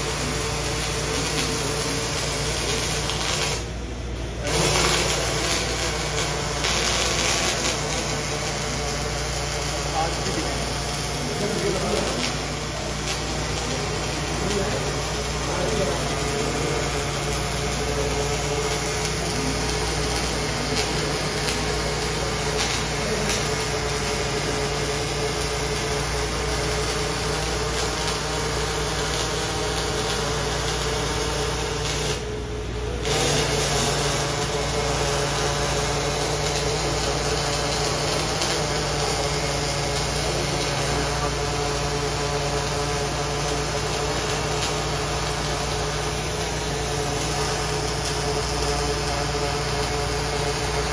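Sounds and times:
constant machine hum: 0.0s - 50.9s
welding hiss: 0.0s - 50.9s.

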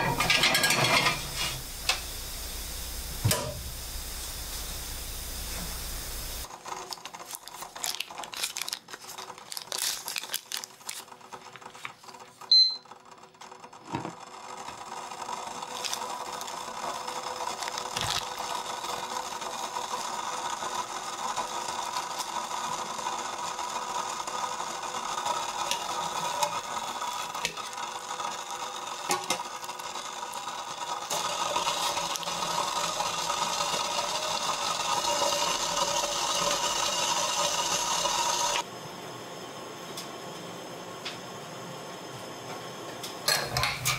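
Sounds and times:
short electronic beep: 12.5s - 12.9s.

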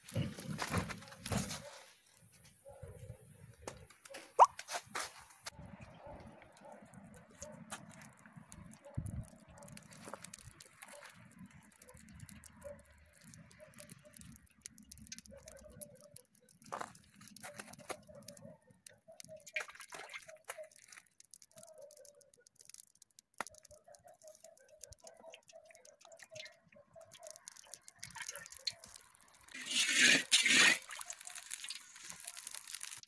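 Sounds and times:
sharp clicks: 5.9s - 29.6s.

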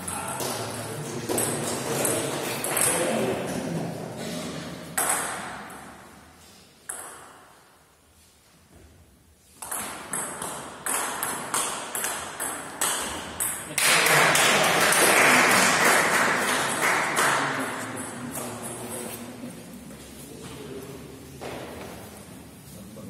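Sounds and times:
crowd clapping: 13.7s - 17.8s.

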